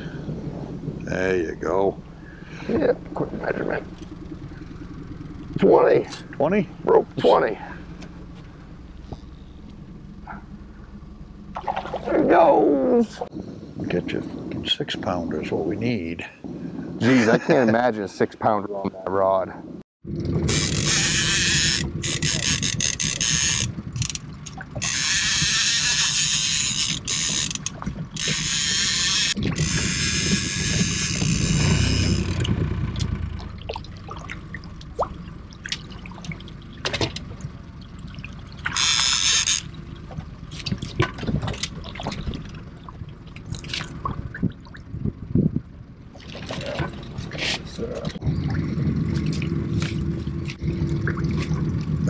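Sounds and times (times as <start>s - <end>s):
low rumble: 0.0s - 17.9s, 19.3s - 52.0s
water splashes: 11.5s - 13.3s, 33.4s - 45.2s, 46.1s - 52.0s
fishing reel drag buzzing: 20.5s - 33.2s, 38.6s - 39.8s.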